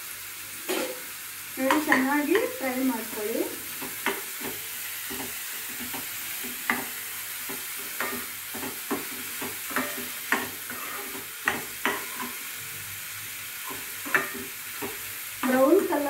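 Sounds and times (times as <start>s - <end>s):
food sizzling in oil: 0.0s - 16.0s
metal spatula scraping a pan: 0.6s - 1.1s, 7.5s - 12.5s.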